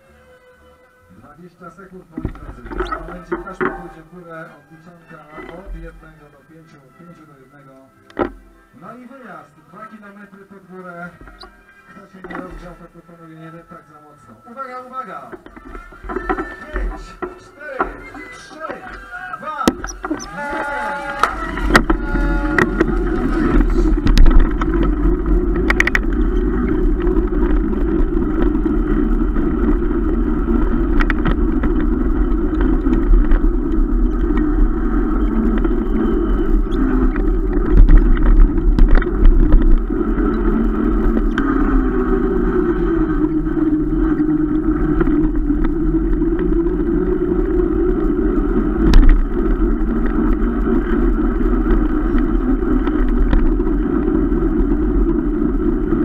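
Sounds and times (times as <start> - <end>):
bike rumbling over paving: 18.6 - 56.0
wind on microphone: 19.8 - 56.0.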